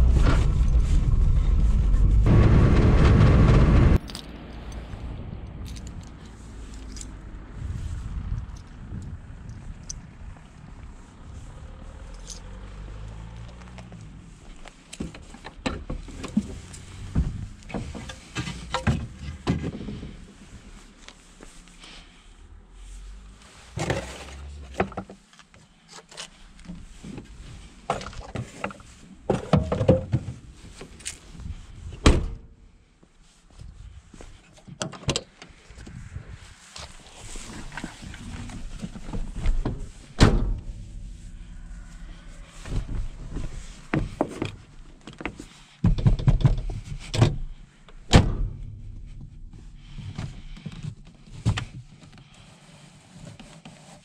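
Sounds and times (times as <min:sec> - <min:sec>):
car latches and panels clunking: 0:39.1 - 0:40.8, 0:48.1 - 0:48.6.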